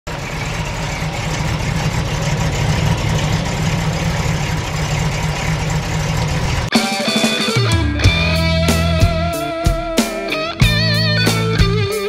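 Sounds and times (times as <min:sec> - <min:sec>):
car engine running near idle: 0:00.1 - 0:06.7.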